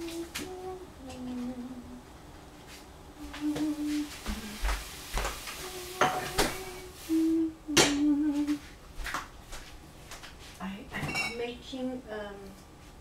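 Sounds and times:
person humming: 0:00.0 - 0:02.1, 0:03.2 - 0:04.7, 0:05.6 - 0:08.6.

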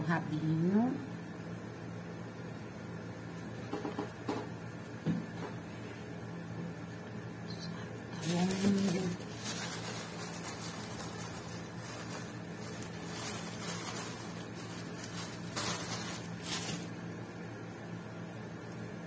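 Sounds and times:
faint brushing: 0:08.2 - 0:16.9.

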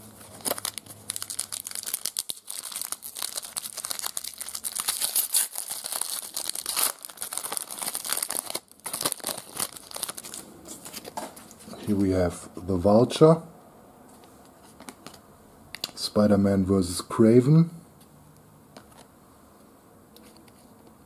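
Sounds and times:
foil wrapper crinkling and tearing: 0:00.2 - 0:11.2.

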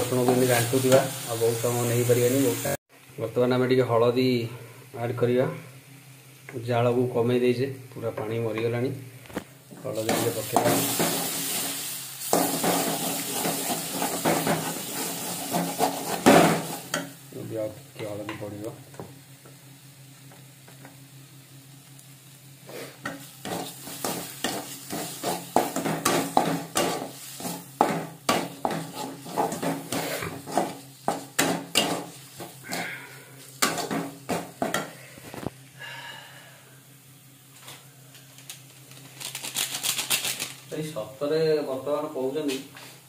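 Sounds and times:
metal spatula scraping a pan: 0:12.3 - 0:16.9, 0:28.3 - 0:32.9.

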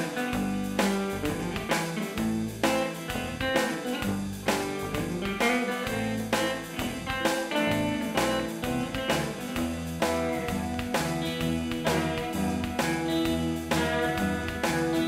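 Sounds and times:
guitar music with bass: 0:00.0 - 0:15.0.

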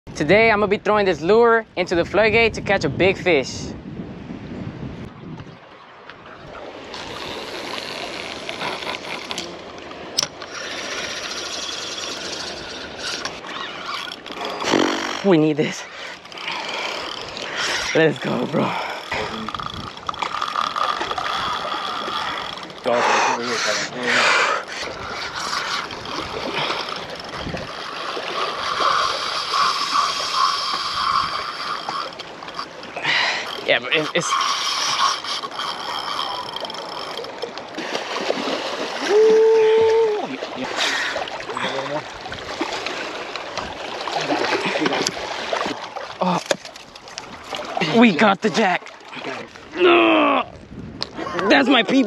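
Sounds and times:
wind: 0:00.0 - 0:52.0
water lapping: 0:04.2 - 0:52.0
fishing reel drag screaming: 0:10.4 - 0:37.4.

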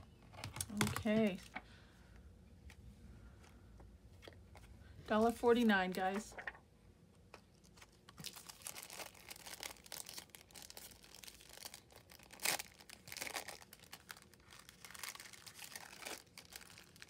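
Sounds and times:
plastic sleeve crinkling: 0:07.3 - 0:17.0.

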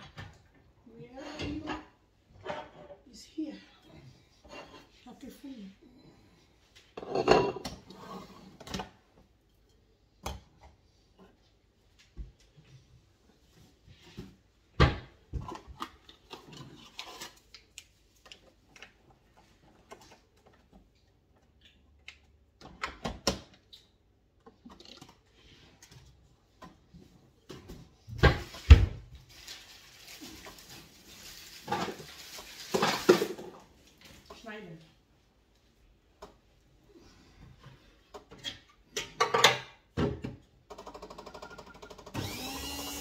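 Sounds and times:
pots and dishes clattering: 0:07.0 - 0:08.9.

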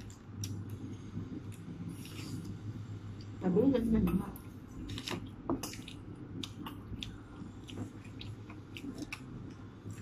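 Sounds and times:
person chewing food: 0:00.0 - 0:03.4, 0:04.4 - 0:10.0.

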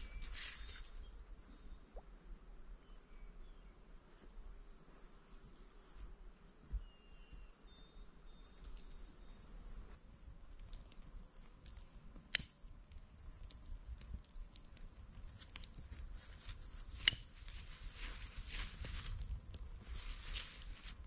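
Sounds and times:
campfire crackling: 0:08.4 - 0:21.0
sharp snaps of burning twigs: 0:10.1 - 0:21.0.

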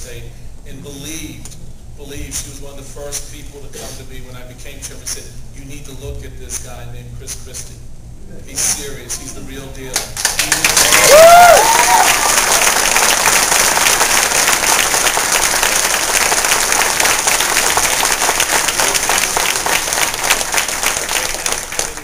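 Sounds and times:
audience applauding: 0:10.2 - 0:22.0
person cheering: 0:10.7 - 0:12.7.

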